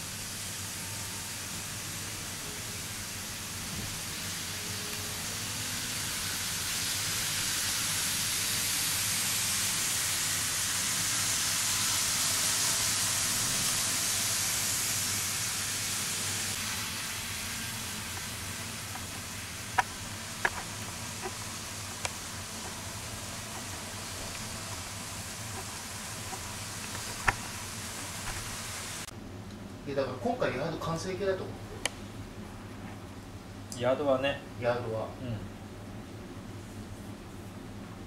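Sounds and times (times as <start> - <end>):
model train running hiss: 0.0 - 29.1.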